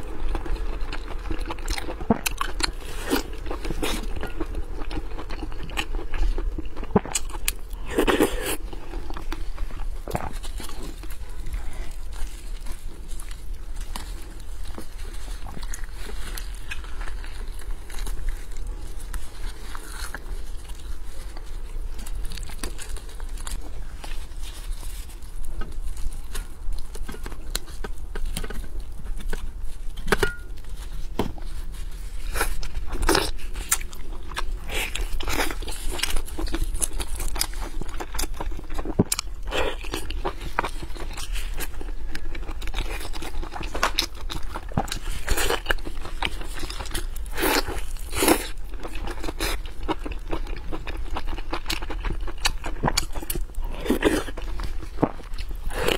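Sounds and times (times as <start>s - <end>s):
biting and chewing: 0.0s - 55.9s
steady low hum: 0.0s - 55.9s.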